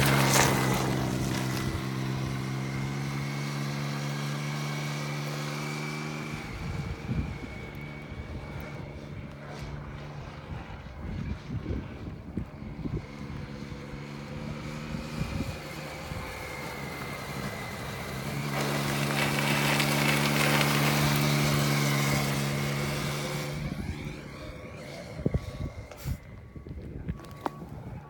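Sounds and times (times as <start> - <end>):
motorcycle engine passing by: 0.0 - 28.0
wind buffeting microphone: 6.2 - 28.0.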